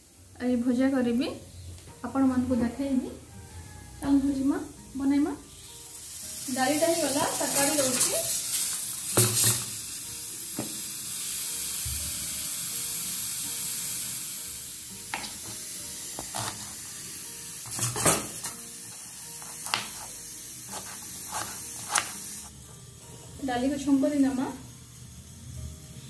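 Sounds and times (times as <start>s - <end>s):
steam hissing: 6.0s - 22.5s
knife chopping on plastic board: 16.2s - 16.8s, 19.4s - 20.1s, 20.7s - 22.2s.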